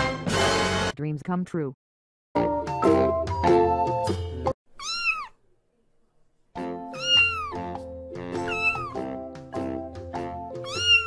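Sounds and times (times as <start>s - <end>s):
background music: 0.0s - 1.0s, 2.4s - 4.6s, 6.6s - 11.0s
cat meowing: 4.8s - 5.4s, 7.0s - 7.7s, 8.4s - 9.0s, 10.6s - 11.0s.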